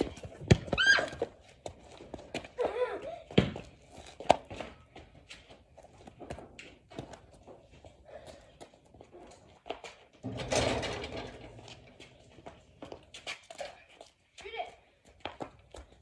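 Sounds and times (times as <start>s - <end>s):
footsteps on concrete: 0.0s - 10.1s, 11.8s - 16.0s
basketball hoop rim clattering: 10.2s - 12.5s.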